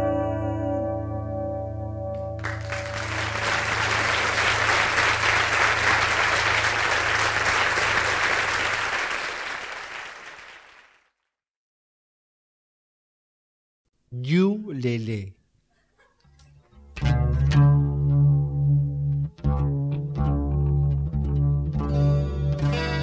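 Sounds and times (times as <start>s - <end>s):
audience applauding: 2.4s - 11.2s.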